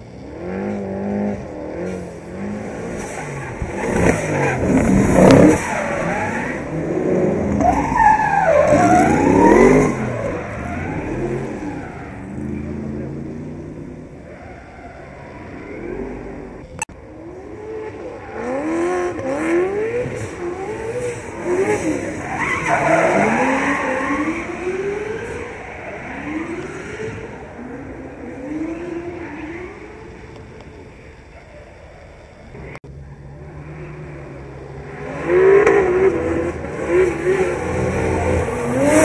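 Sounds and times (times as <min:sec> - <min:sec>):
car engine revving: 0:00.0 - 0:30.5, 0:32.6 - 0:39.0
tyres squealing: 0:07.4 - 0:13.2.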